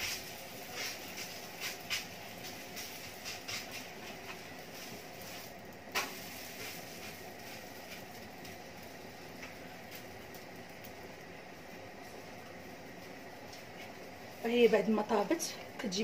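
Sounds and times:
steaming pot hiss: 0.0 - 11.0.

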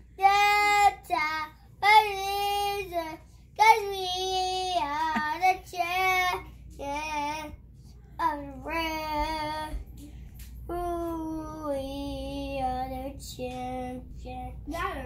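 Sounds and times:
boy singing: 8.2 - 10.0, 10.7 - 15.0.

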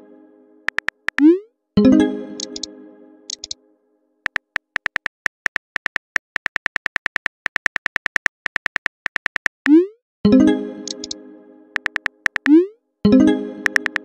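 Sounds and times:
phone keyboard typing clicks: 0.7 - 1.4, 2.4 - 2.7, 3.3 - 3.6, 4.3 - 9.8, 10.8 - 11.2, 11.8 - 12.6, 13.6 - 14.0.

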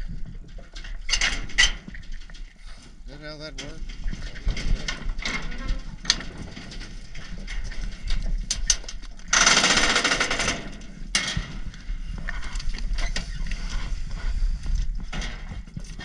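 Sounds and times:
scattered knocks and clanks: 3.5 - 11.7
rapid rattling clatter: 3.6 - 10.9.

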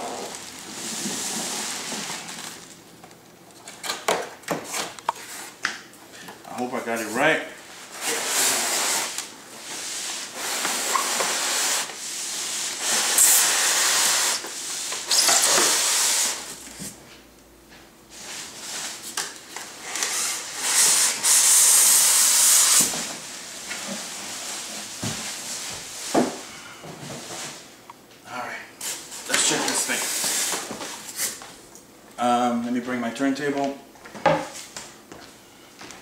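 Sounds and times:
foam block scraping cardboard box: 7.9 - 9.2, 9.8 - 11.9.

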